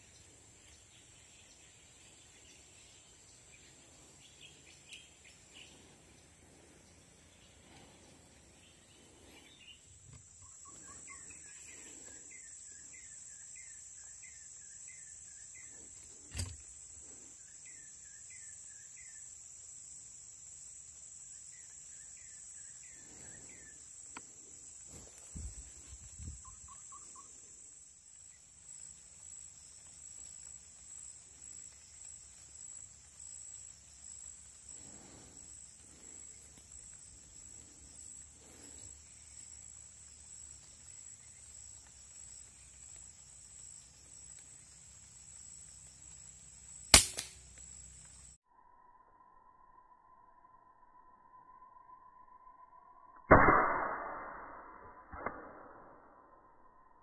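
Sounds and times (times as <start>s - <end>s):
bird chirping: 0.0s - 19.3s, 25.3s - 27.5s
insects buzzing: 0.0s - 53.0s
sharp click: 16.3s - 16.6s, 47.0s - 47.4s, 55.1s - 55.6s.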